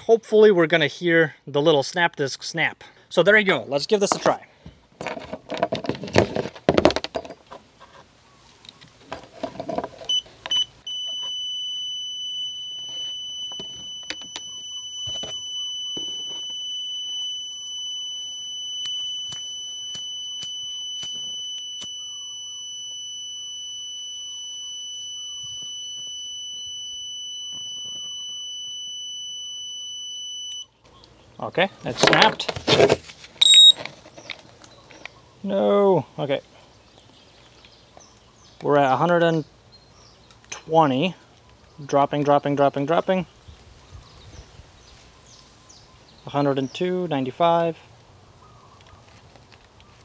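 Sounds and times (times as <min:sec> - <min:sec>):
meter continuity beeps: 0:10.1 - 0:30.8, 0:33.4 - 0:33.8
test leads clicking and rattling: 0:12.4 - 0:22.0
sharp clicks: 0:13.4 - 0:22.1.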